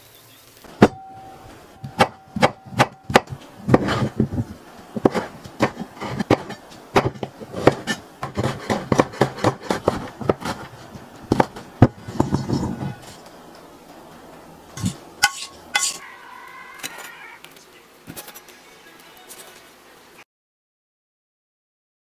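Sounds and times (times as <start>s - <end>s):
knife chopping on cutting board: 1.8s - 12.6s.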